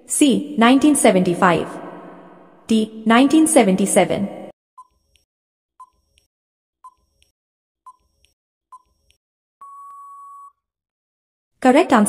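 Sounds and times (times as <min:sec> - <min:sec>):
long steady beep: 0:09.6 - 0:10.6.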